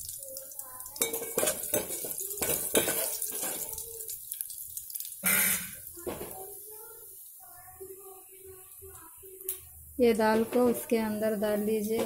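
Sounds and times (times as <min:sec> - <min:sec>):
spices sizzling in hot oil: 0:00.0 - 0:12.0
metal spoon scraping a pot: 0:01.0 - 0:03.8.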